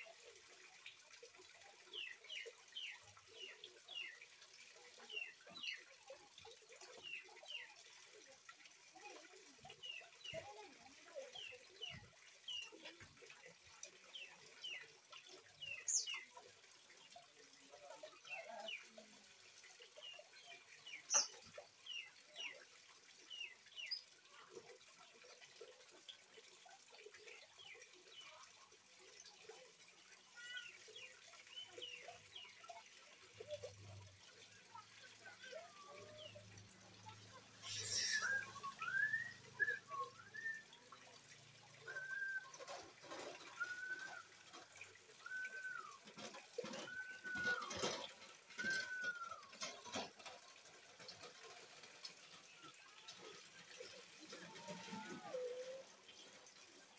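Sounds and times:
trickle of running water: 0.0 - 56.9
young bird chirping: 37.6 - 39.1.

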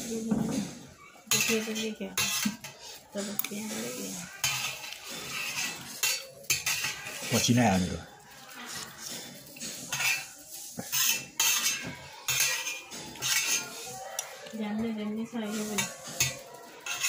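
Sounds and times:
metal spoon scraping brass plate: 1.3 - 2.8, 3.7 - 7.6, 9.6 - 14.0, 15.5 - 17.0.

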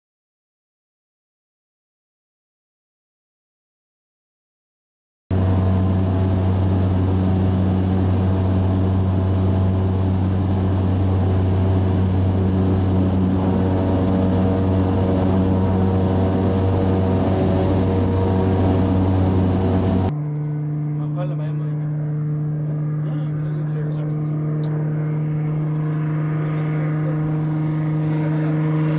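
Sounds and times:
propeller aircraft engine drone: 5.3 - 28.9.

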